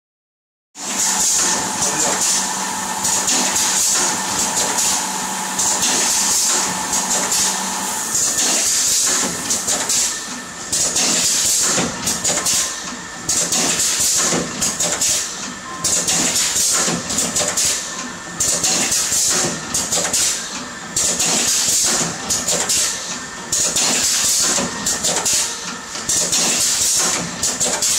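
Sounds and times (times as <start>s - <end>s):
steady machine hum: 0.8s - 13.5s.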